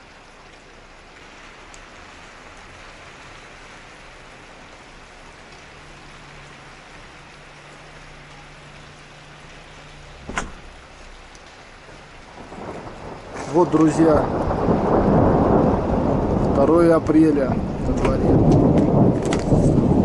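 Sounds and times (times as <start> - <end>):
heavy rain hissing: 0.0 - 20.0
sharp thunder crack: 10.2 - 10.8, 12.4 - 20.0.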